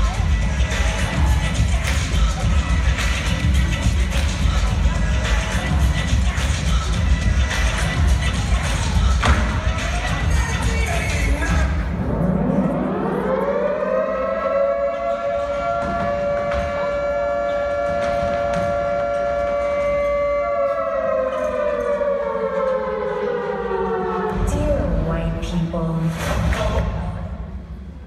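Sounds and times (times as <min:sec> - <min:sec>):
air-raid siren over loudspeakers: 0:07.7 - 0:25.2.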